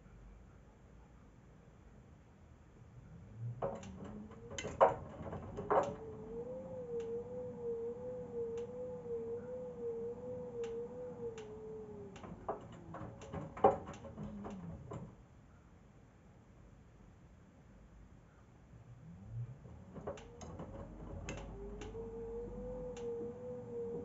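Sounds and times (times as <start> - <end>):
washing machine motor whine: 3.1 - 15.2, 18.9 - 24.0.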